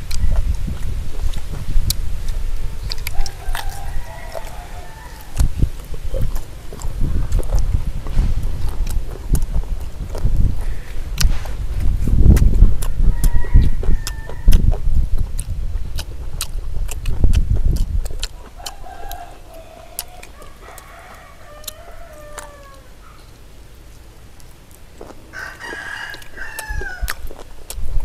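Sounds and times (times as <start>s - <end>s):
rooster crowing: 3.1s - 5.4s, 12.9s - 14.6s, 18.6s - 23.3s, 25.3s - 27.2s
low thumping and rumble: 5.2s - 18.4s.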